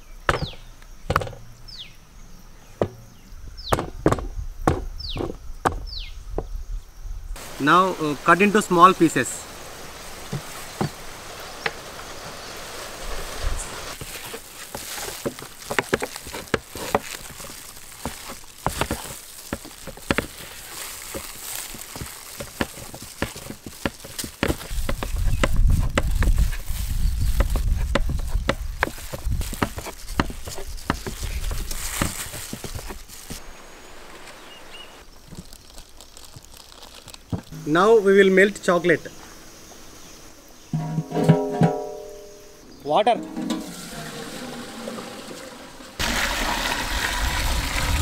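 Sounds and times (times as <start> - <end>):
low rumble: 46.8 - 48.0.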